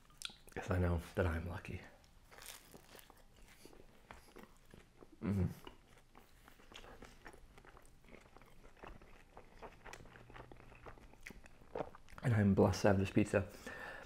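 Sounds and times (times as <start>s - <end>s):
wet mouth clicks: 0.2s - 0.5s
chewing crispy pizza: 2.3s - 12.5s.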